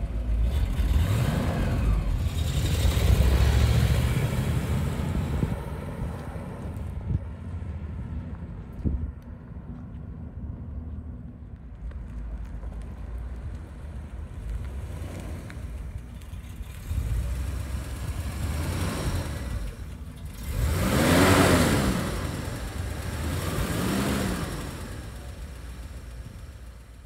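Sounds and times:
car engine revving: 0.0 - 6.9, 14.6 - 27.0
car engine running: 12.8 - 27.0.

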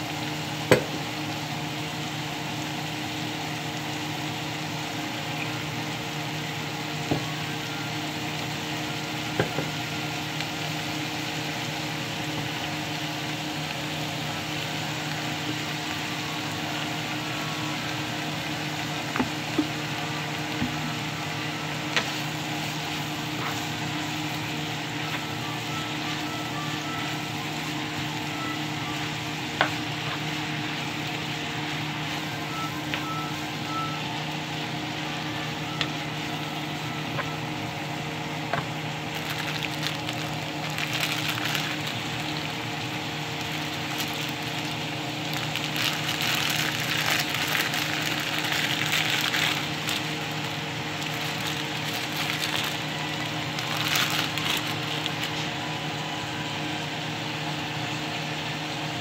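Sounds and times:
vegetables sizzling in frying pan: 0.0 - 56.1
steady hum: 0.0 - 59.0
plastic pack rustling: 39.0 - 42.6, 43.2 - 55.4.

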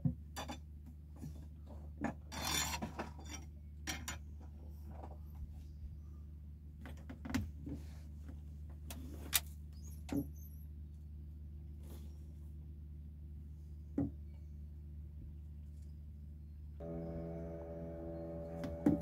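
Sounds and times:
steady low hum: 16.8 - 19.0.

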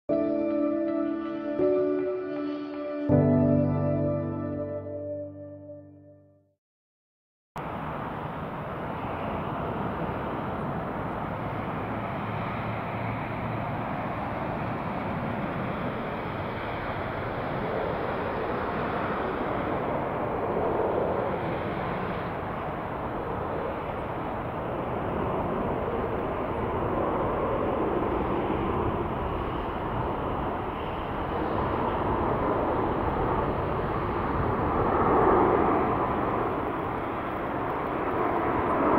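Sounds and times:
jet engine roar: 7.6 - 38.9.

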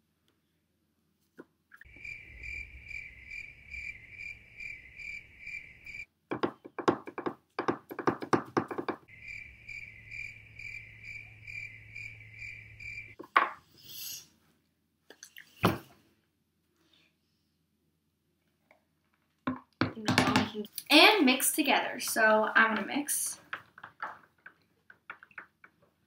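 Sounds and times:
crickets chirping: 1.9 - 6.1, 9.1 - 13.2.

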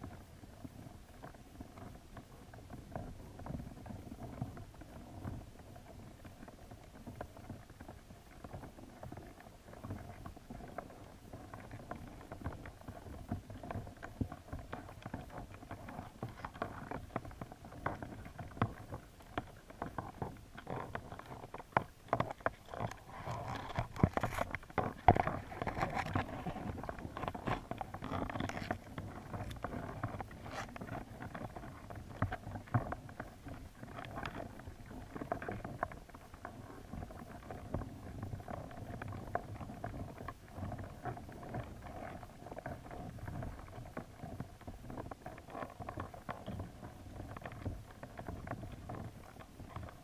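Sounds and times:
muffled underwater sound: 0.0 - 50.0
crayfish clicking and tapping: 11.8 - 34.6.

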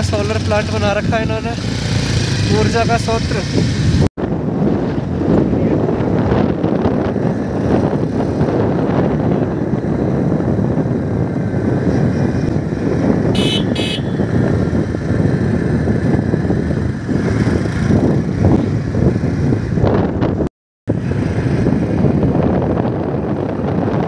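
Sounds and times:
motorcycle rumbling: 0.0 - 24.0
wind rushing over microphone: 0.0 - 24.0.

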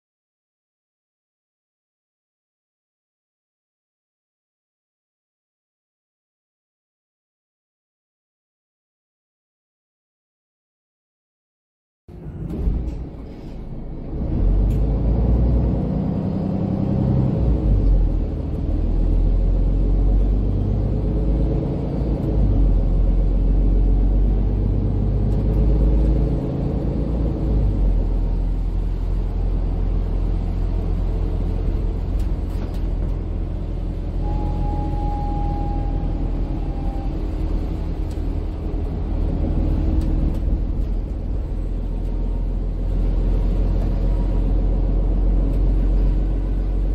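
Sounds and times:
bus engine and road rumble: 12.1 - 46.9
brief high tone: 34.2 - 37.6.

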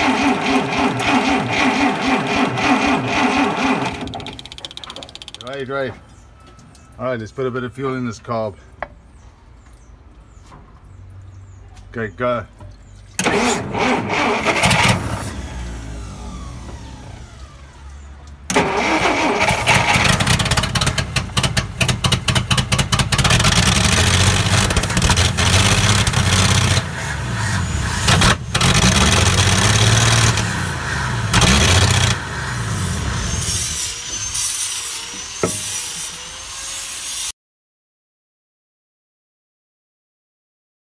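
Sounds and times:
engine sputtering and revving: 0.0 - 4.4, 13.2 - 33.8
fuel spitting from carburettor: 13.2 - 15.6, 18.5 - 33.8.

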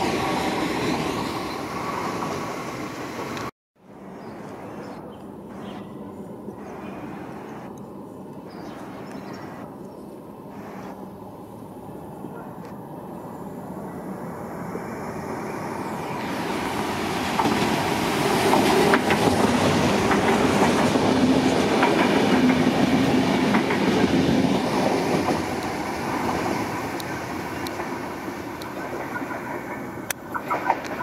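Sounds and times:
train wheels clattering: 17.2 - 31.0.

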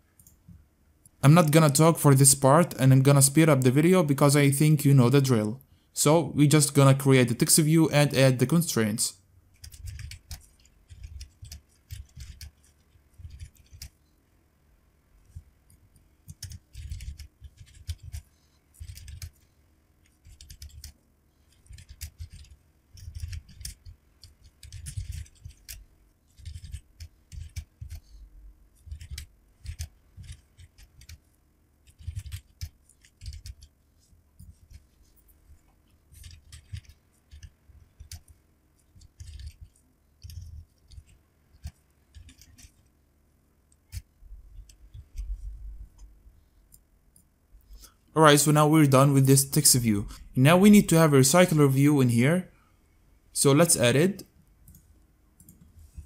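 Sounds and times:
keyboard typing: 9.5 - 14.0, 15.3 - 19.4, 20.0 - 28.0, 28.8 - 33.8, 36.1 - 42.9.

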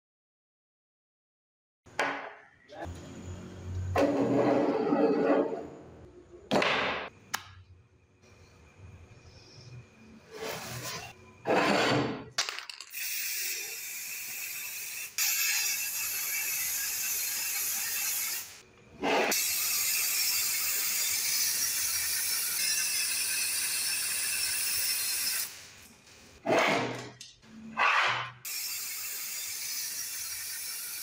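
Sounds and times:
spray paint can hissing: 12.9 - 16.2.

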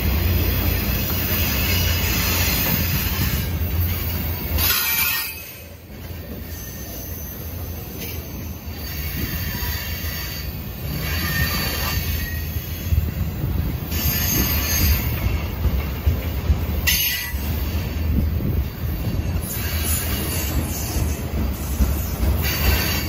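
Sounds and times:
train wheels rumbling on rail: 0.0 - 23.0
high-pitched wheel squeal: 0.9 - 12.8.

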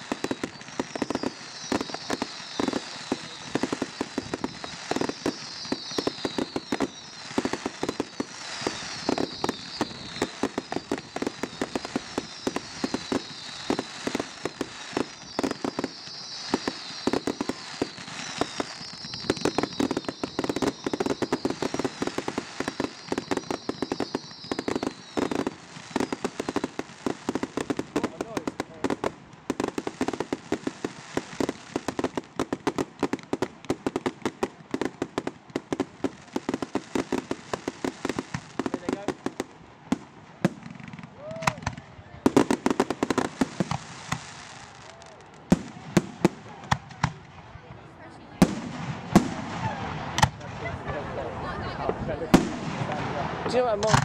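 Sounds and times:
falling firework whistles: 0.0 - 39.5
fireworks bangs and crackles: 0.0 - 54.0.

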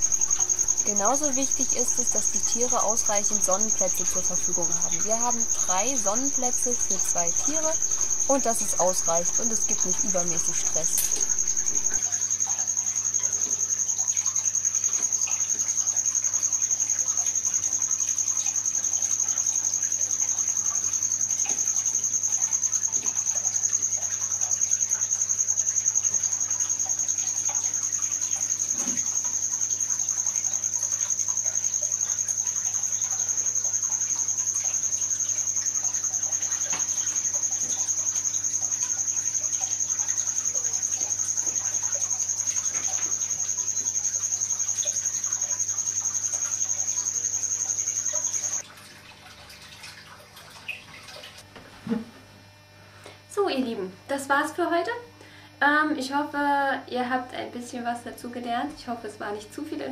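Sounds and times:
high-pitched whine: 0.0 - 12.4
low electrical hum: 0.0 - 59.9.

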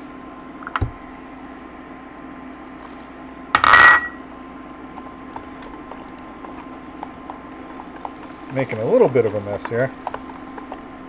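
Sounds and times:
steady low hum: 0.0 - 11.0
glass bowl clinking on countertop: 3.6 - 4.2.

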